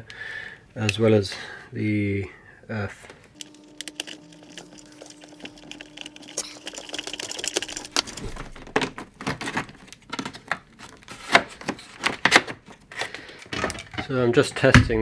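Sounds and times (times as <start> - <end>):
faint steady hum: 0.0 - 14.1
wiring handling ticks and rustle: 3.3 - 14.6.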